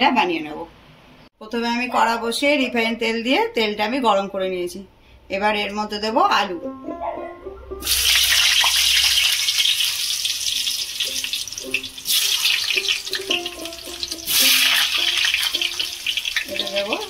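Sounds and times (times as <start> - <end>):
potatoes sizzling in hot oil: 7.8 - 17.0.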